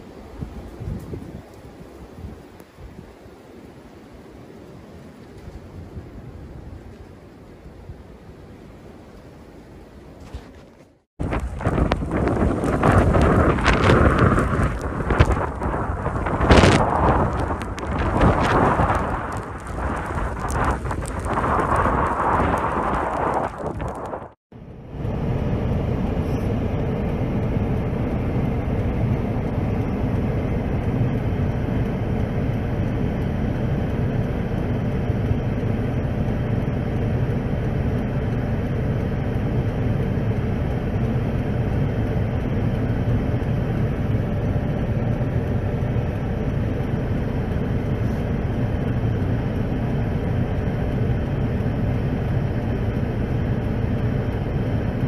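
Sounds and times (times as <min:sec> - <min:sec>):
wind blowing against car: 0:00.0 - 0:03.4, 0:09.8 - 0:24.4
car running and road noise: 0:00.0 - 0:55.0.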